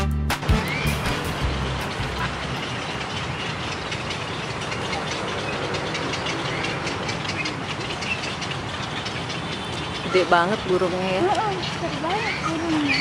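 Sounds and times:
background music: 0.0 - 2.9
outdoor background noise: 0.3 - 13.0.

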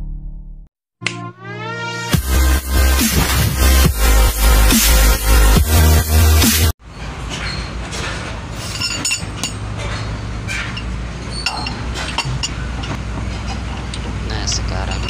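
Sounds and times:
wrench clinking on wheel nuts: 7.3 - 15.0.

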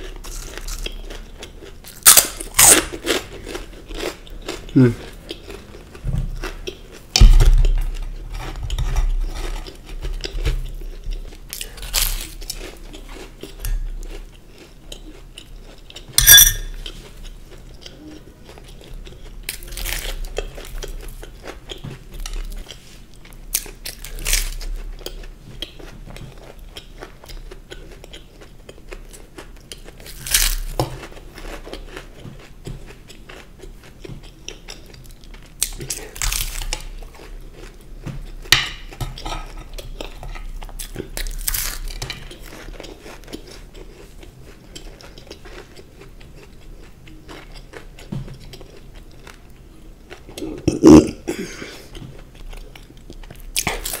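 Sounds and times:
crunchy bites and chewing: 0.0 - 16.1, 17.8 - 22.8, 23.5 - 25.2, 26.3 - 32.2, 34.2 - 44.1, 52.4 - 54.0
plate clattering: 16.2 - 16.8.

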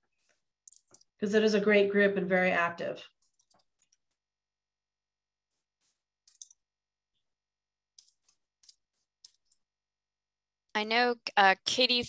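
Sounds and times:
faint keyboard clicks: 0.7 - 1.1, 6.2 - 6.6.

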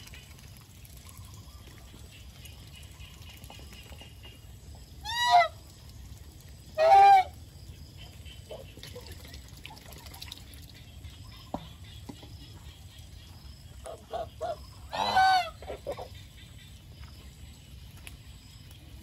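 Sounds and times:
geese honking: 13.9 - 16.5.

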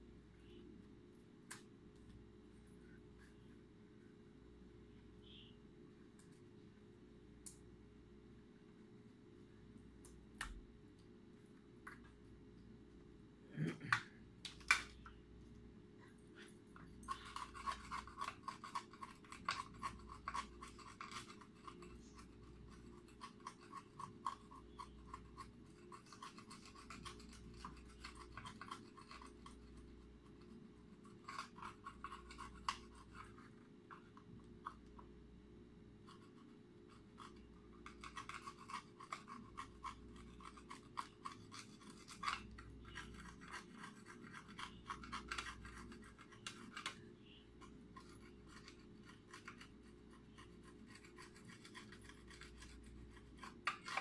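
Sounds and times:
hand tool scratching on wires: 36.1 - 47.0, 47.6 - 54.0.

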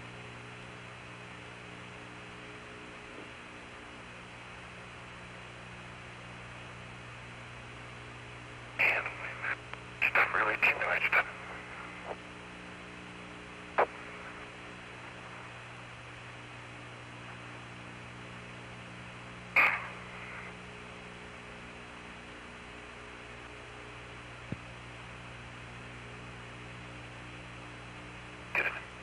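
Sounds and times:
low electrical hum: 0.0 - 29.0
radio hiss: 8.7 - 12.4, 13.2 - 18.0, 19.4 - 22.6, 28.4 - 29.0
short radio bursts: 8.8 - 12.2, 13.7 - 14.5, 19.6 - 20.6, 28.5 - 29.0.

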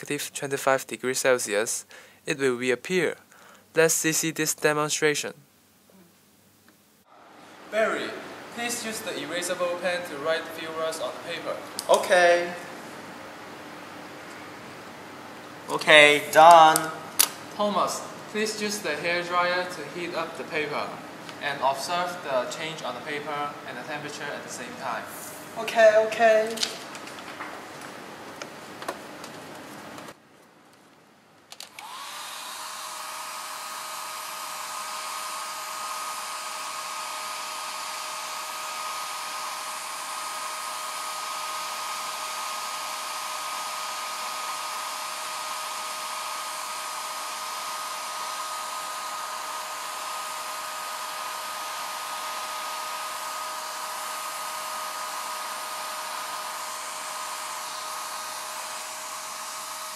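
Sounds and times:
hairdryer switch: 11.7 - 12.1, 31.5 - 59.9
hairdryer running: 31.6 - 59.9.

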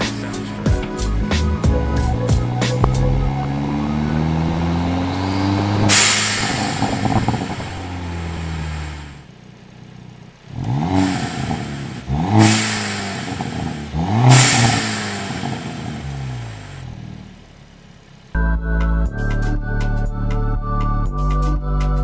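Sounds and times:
car engine revving: 0.0 - 18.4
exhaust crackles: 0.0 - 18.4.

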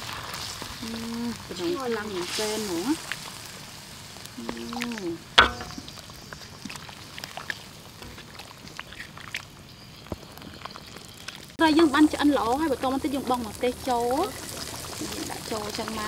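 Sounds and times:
crackling and bubbling: 0.0 - 16.0
sauce simmering in a wok: 0.0 - 16.0
sharp knock on wok: 5.4 - 6.0.

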